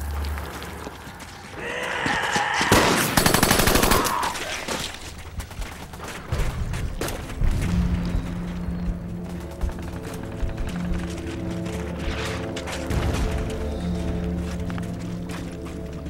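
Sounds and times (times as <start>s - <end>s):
automatic gunfire: 2.7s - 4.2s.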